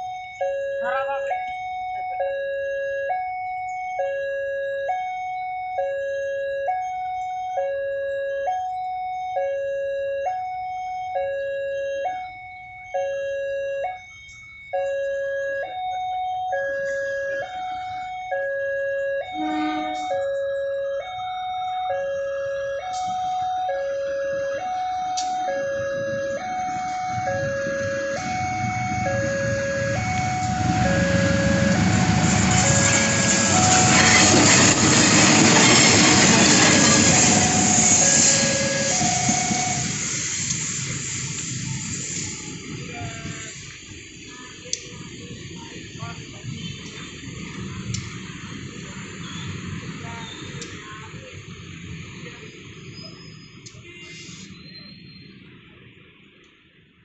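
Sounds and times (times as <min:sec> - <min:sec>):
level crossing two-tone alarm: 0:00.0 - 0:40.3
diesel locomotive rumble: 0:00.0 - 0:56.9.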